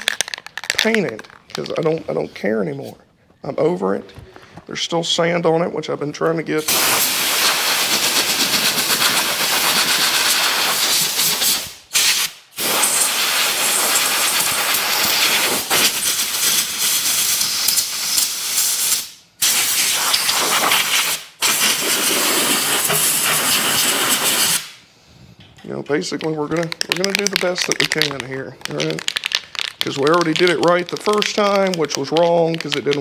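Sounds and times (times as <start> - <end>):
compressed air blow gun hissing: 6.6 - 24.8.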